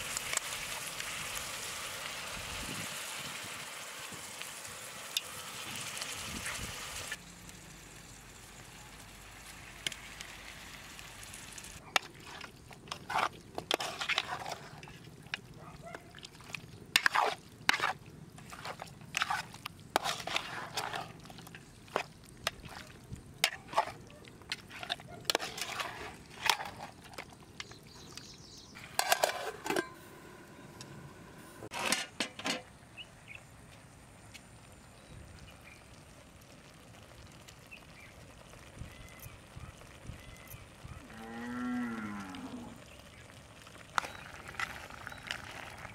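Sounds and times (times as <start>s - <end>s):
spatula scraping in metal pot: 12.0s - 15.1s, 16.9s - 27.3s, 28.8s - 30.0s.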